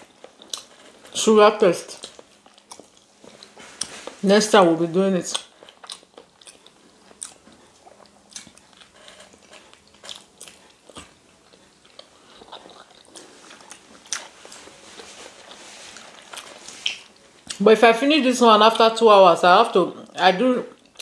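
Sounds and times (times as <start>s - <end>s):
people biting and chewing: 0.0s - 1.1s, 2.0s - 4.2s, 5.3s - 17.6s.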